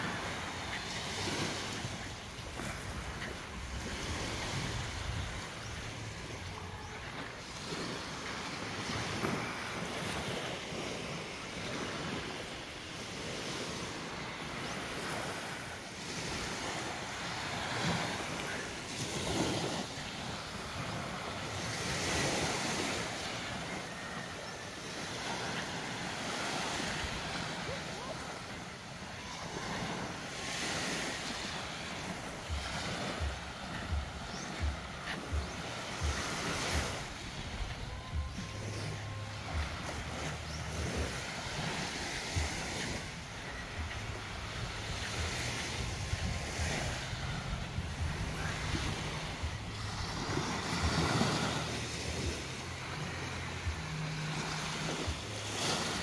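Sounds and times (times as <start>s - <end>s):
waves washing up a sandy shore: 0.0s - 56.0s
wind buffeting microphone: 32.1s - 51.8s.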